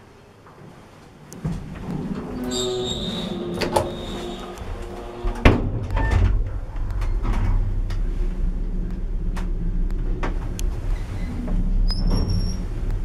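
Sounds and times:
lift running hum: 1.1s - 13.0s
clicks: 3.5s - 8.1s.

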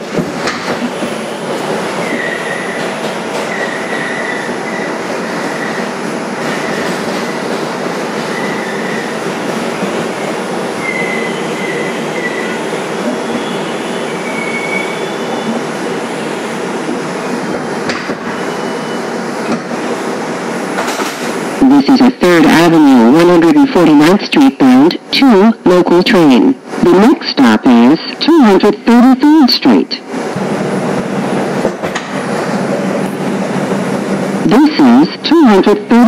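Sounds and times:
subway wheels rumbling on rail: 0.0s - 21.8s, 29.7s - 36.0s
high wheel squeals: 2.0s - 2.8s, 3.5s - 5.9s, 8.3s - 9.1s, 10.8s - 12.6s, 13.3s - 15.6s.

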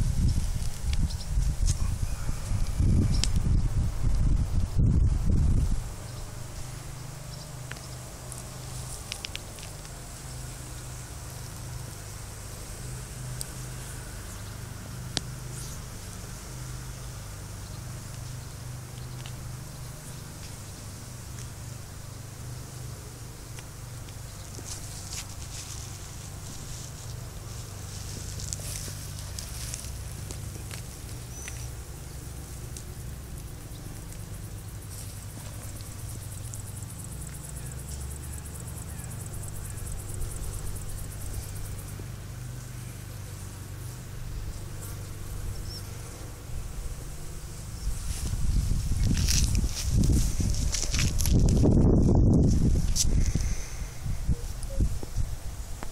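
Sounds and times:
wind rumble on microphone: 0.0s - 9.7s, 46.4s - 55.9s
hedgehogs moving through dry grass: 0.0s - 55.9s
low steady rumble: 0.0s - 55.9s.

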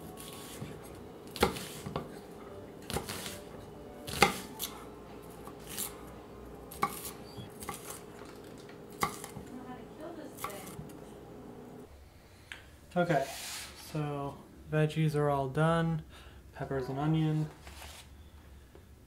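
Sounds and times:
knife chopping on wooden board: 0.2s - 2.2s, 2.9s - 3.4s, 4.1s - 4.8s, 6.7s - 8.0s, 8.9s - 9.5s.

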